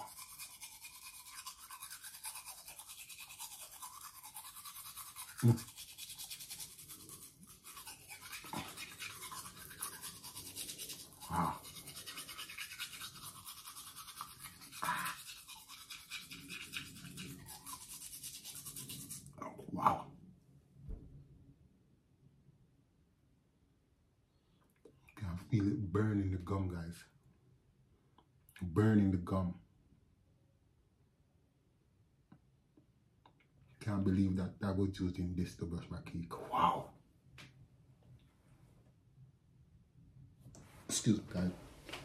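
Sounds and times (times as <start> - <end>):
toothbrush scrubbing teeth: 0.0 - 19.4.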